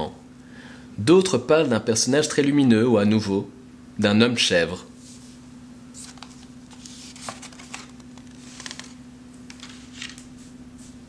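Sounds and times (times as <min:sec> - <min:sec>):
low steady hum: 0:00.0 - 0:11.0
paper rustling: 0:05.9 - 0:11.0.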